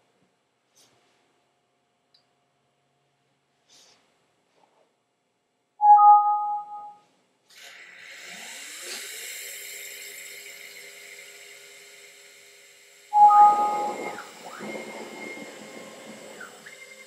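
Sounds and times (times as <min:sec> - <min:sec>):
hiss: 0:07.5 - 0:17.0
router spindle whining: 0:07.6 - 0:17.0
loud whistle-like tone: 0:09.9 - 0:17.0.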